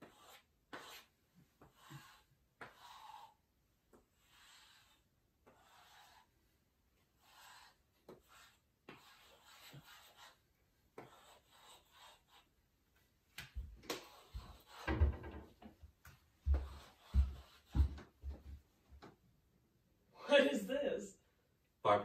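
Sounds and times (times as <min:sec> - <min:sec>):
chalk scraping on hard floor: 0:00.0 - 0:03.4, 0:04.0 - 0:06.4, 0:07.1 - 0:10.4, 0:11.0 - 0:12.5, 0:13.5 - 0:15.0, 0:16.5 - 0:18.0
knocks and thumps: 0:13.6 - 0:19.1.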